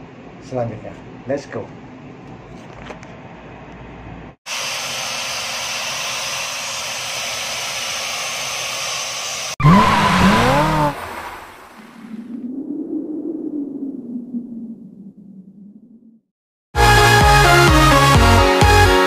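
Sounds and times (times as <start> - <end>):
tyre squeal sound effect: 9.6 - 11.0.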